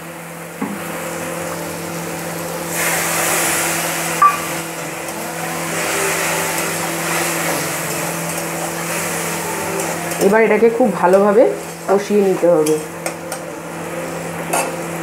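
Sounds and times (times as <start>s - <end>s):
food sizzling in hot oil: 0.0s - 15.0s
steady hum: 0.0s - 15.0s
spatula stirring: 4.2s - 13.2s.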